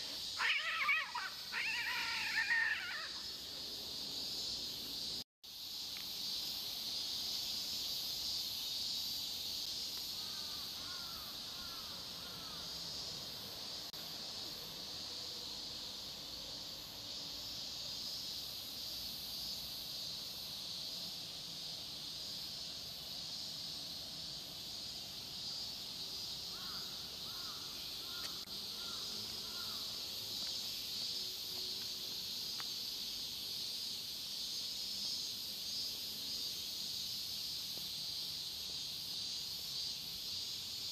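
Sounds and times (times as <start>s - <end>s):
high insect chorus: 0.0s - 40.9s
crow cawing faintly: 10.2s - 12.6s, 26.5s - 29.8s.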